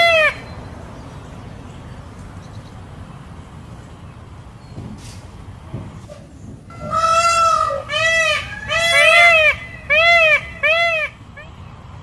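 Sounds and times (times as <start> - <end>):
peafowl calling: 0.0 - 0.5, 6.7 - 11.6.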